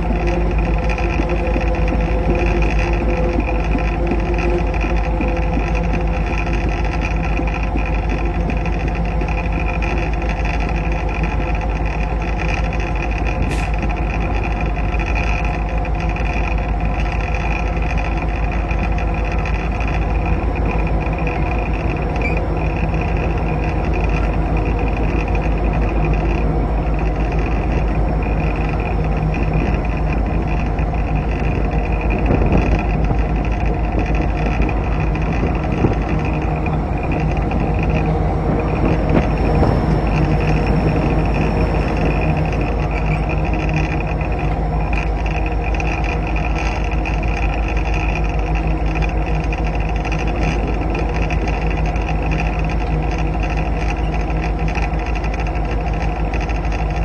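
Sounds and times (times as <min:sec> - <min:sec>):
diesel locomotive engine drone: 0:00.0 - 0:57.0
low track rumble: 0:00.0 - 0:57.0.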